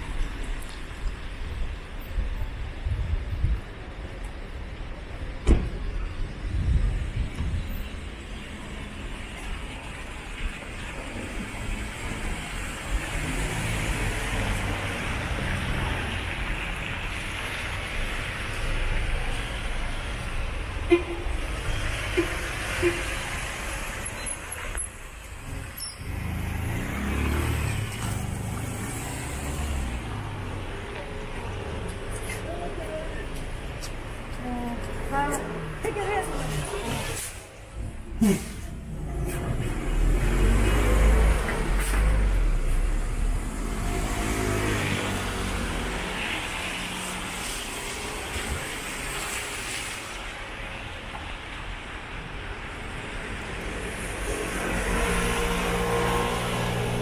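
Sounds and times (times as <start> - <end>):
vehicle engine rumble: 0.0 - 57.0
tyres hissing on wet road: 8.0 - 57.0
tyre hiss on wet road: 40.0 - 51.9.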